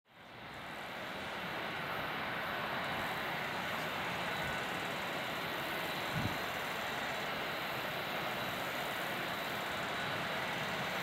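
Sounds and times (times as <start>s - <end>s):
jet engines rushing: 0.2s - 11.0s.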